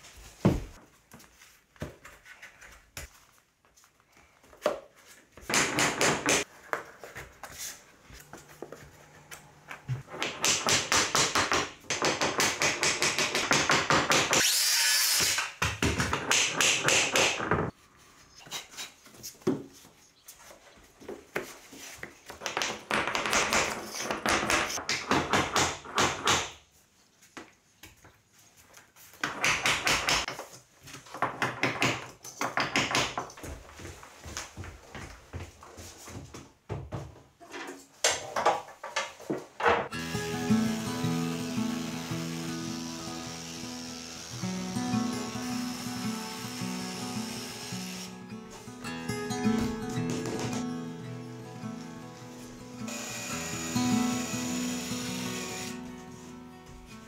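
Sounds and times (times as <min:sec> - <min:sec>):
power saw cutting: 0:14.4 - 0:15.4, 0:39.9 - 0:48.2, 0:52.9 - 0:55.9.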